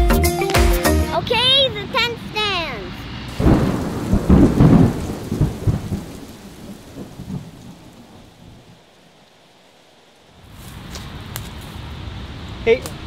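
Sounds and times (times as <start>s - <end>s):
rain hiss: 1.2s - 13.0s
thunder rumbling: 2.5s - 9.0s.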